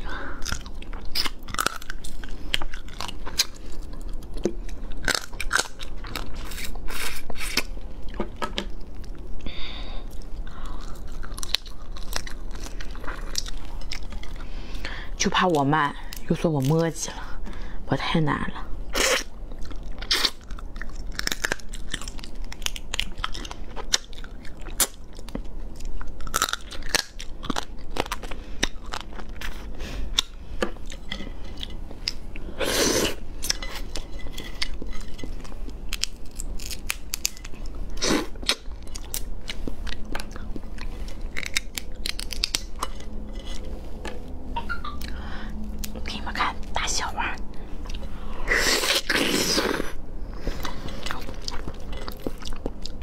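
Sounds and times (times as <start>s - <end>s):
crunching crab shell: 19.0s - 29.6s, 33.0s - 43.6s.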